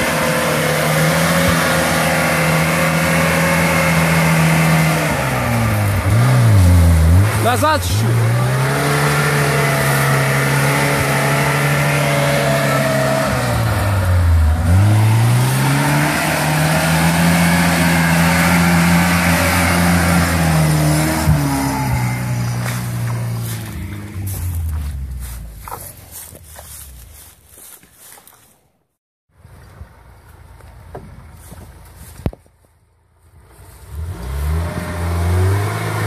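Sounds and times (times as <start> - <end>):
car engine at high revs: 0.0 - 27.3, 33.3 - 36.0
wheels churning through mud: 0.0 - 28.6.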